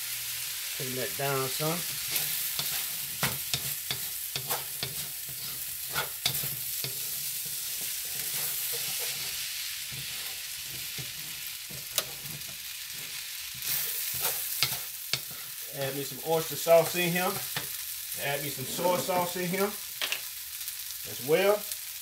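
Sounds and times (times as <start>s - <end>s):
rice sizzling in a wok: 0.0s - 22.0s
spatula scraping and knocking pan: 1.8s - 15.6s, 16.7s - 17.8s, 18.5s - 19.5s.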